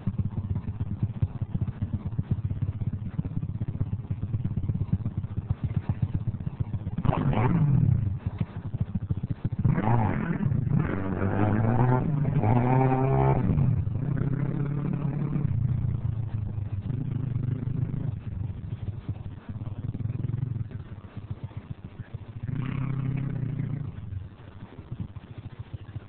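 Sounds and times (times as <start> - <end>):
small motorbike engine revving: 7.0 - 8.8, 9.5 - 20.9.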